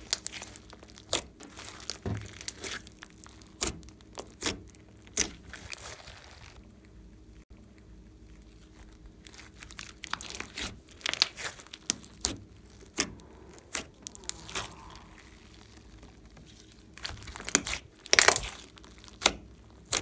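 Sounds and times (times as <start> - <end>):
slime crackling and popping: 0.0 - 20.0.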